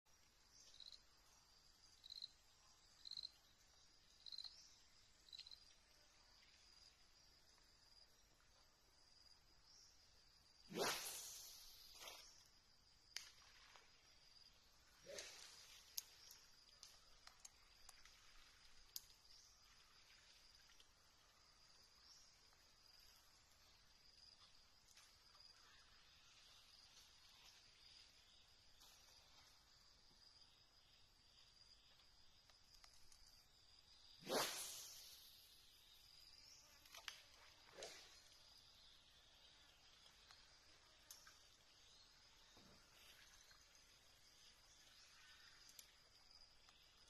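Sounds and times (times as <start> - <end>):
insects droning: 0.1 - 47.0
short high insect chirps: 0.3 - 8.2, 9.1 - 47.0
high-pitched insect chirring: 4.2 - 4.6.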